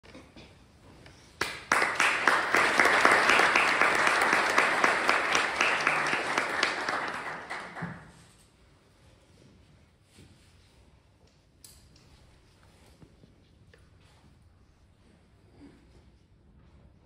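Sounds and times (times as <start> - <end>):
audience applauding: 1.4 - 8.2.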